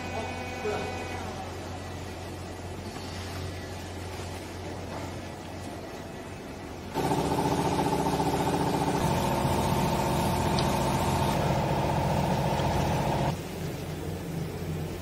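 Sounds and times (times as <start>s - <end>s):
machine motor running: 6.9s - 13.4s.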